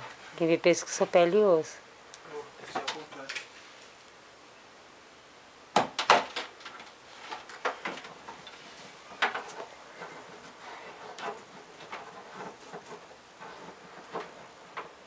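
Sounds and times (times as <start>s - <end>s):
knocks on wooden stand: 5.8s - 6.4s.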